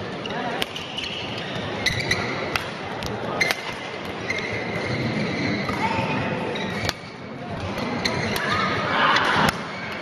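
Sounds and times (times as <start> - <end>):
crowd chatter: 0.0 - 10.0
shoes squeaking on court: 0.1 - 8.6
rackets hitting shuttlecock: 0.5 - 1.2, 1.9 - 4.6, 6.7 - 8.6, 9.2 - 10.0.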